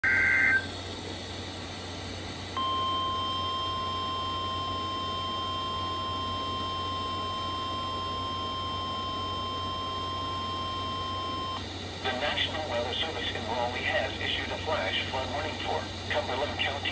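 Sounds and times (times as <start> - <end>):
warbling data screech: 0.0 - 0.7
steady alarm tone: 0.0 - 0.8, 2.6 - 11.6.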